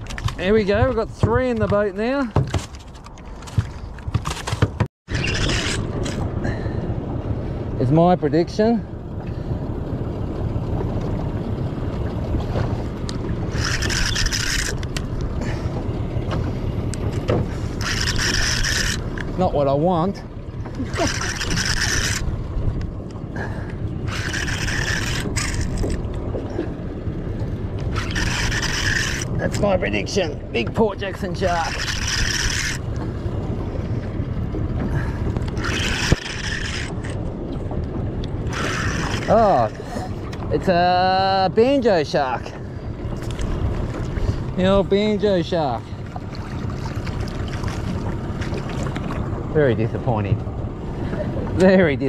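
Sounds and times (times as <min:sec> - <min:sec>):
wind and water rumble: 0:00.0 - 0:52.0
fishing reel whirring: 0:05.1 - 0:06.2, 0:13.5 - 0:15.0, 0:17.8 - 0:19.2, 0:20.8 - 0:22.3, 0:24.0 - 0:26.0, 0:27.9 - 0:29.3, 0:31.5 - 0:32.8, 0:35.5 - 0:37.2, 0:38.5 - 0:39.4.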